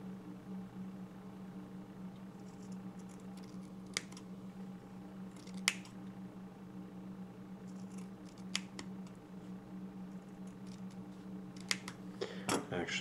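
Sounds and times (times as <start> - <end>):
scissors snipping wick: 2.5 - 4.2, 5.3 - 6.0, 7.7 - 9.2, 10.4 - 12.0.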